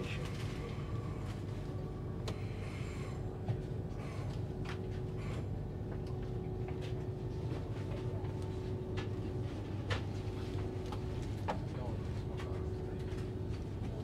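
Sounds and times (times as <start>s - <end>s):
steady low hum: 0.0s - 14.0s
faint voices: 11.4s - 14.0s.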